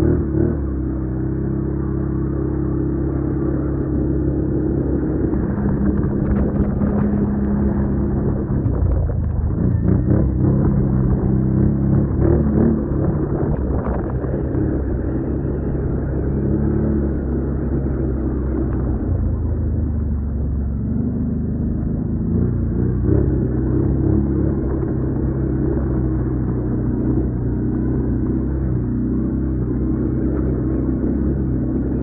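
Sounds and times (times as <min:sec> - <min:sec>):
quad bike engine revving: 0:00.0 - 0:18.7.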